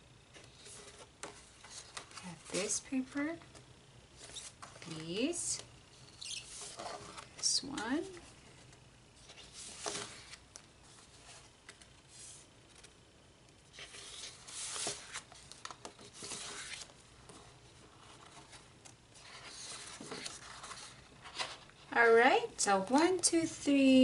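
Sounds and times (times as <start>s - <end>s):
paper sheets rustling: 8.5s - 12.9s, 13.7s - 21.7s.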